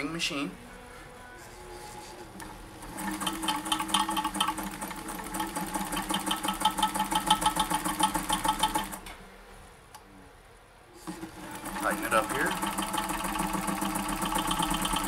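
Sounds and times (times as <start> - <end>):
sewing machine running: 2.4 - 9.0, 11.0 - 15.0.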